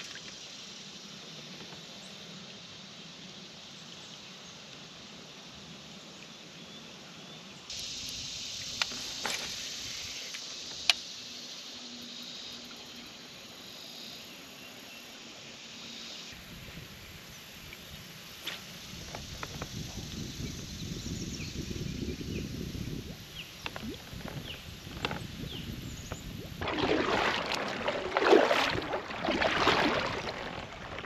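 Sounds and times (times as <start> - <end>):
high insect buzz: 7.7 - 26.3.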